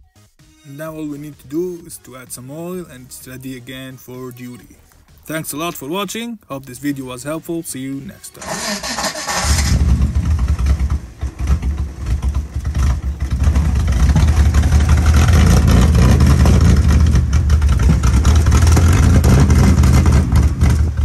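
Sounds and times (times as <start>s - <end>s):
car engine idling: 8.4s - 21.0s.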